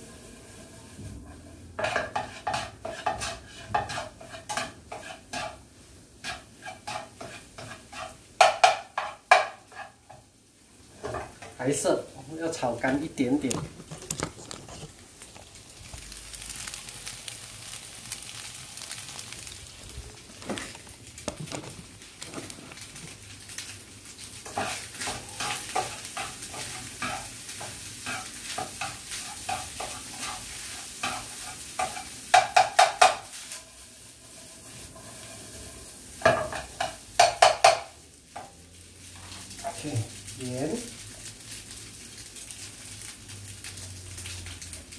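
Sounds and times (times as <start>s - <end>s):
rice sizzling in a frying pan: 0.0s - 44.9s
spatula scraping pan: 0.6s - 10.3s, 24.4s - 37.8s
spatula clanking on pan: 1.8s - 5.6s, 6.2s - 10.3s, 24.5s - 30.4s, 31.0s - 33.4s, 36.2s - 38.5s.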